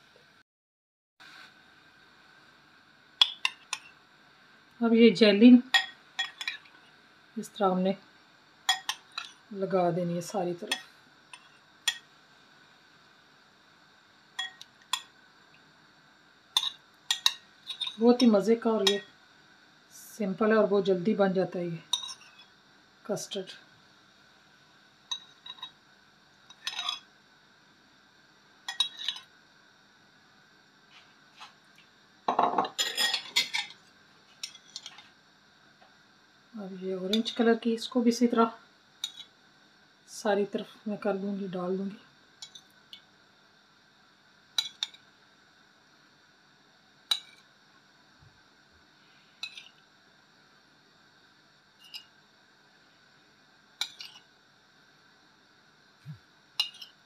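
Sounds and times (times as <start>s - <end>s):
utensil clinking against dishes: 5.7s - 6.7s, 8.7s - 9.3s, 14.4s - 15.1s, 28.7s - 29.2s, 32.3s - 33.8s.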